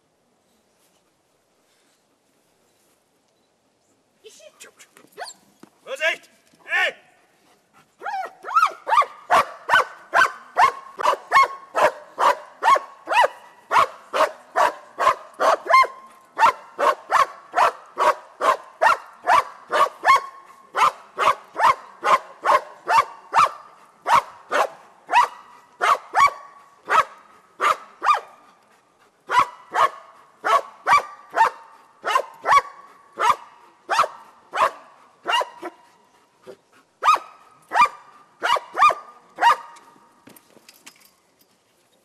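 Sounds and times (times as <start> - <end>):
dog barking: 8.0 - 28.4, 29.3 - 35.8, 37.0 - 39.8.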